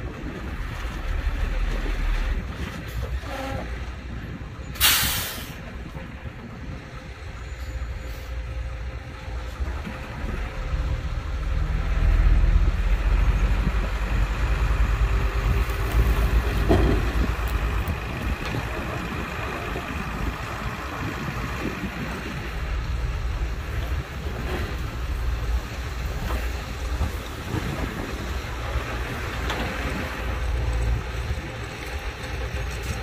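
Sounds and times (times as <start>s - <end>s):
diesel machinery engine rumble: 0.0s - 33.0s.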